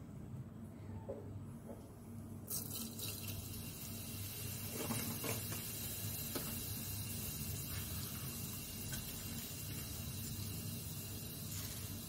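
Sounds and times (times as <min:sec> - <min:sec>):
seeds sizzling in hot oil: 0:02.5 - 0:12.0.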